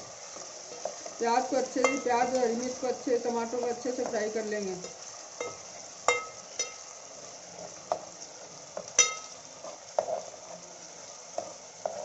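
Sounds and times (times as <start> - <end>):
vegetables sizzling in oil: 0.0 - 12.0
metal spoon clinking on pot: 1.8 - 2.4, 4.8 - 6.9, 9.0 - 9.4.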